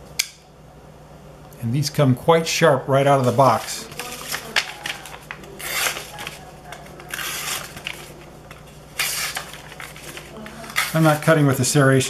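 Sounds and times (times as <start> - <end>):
knife slicing paper: 3.2 - 8.2, 9.0 - 11.3
paper rustling: 3.2 - 11.6.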